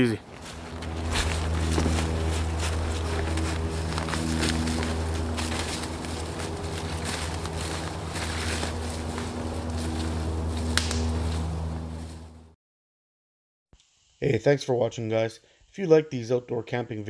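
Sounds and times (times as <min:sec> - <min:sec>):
footsteps crunching through dry leaves: 0:00.0 - 0:12.5
low droning hum: 0:00.0 - 0:12.6
sharp crack: 0:10.6 - 0:11.2.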